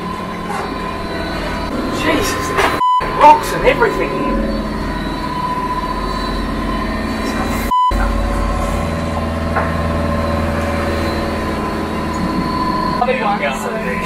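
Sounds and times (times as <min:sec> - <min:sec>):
boat engine running: 0:00.0 - 0:14.0
thin high tone: 0:00.0 - 0:14.0
censor bleep: 0:02.8 - 0:03.4, 0:04.1 - 0:14.0.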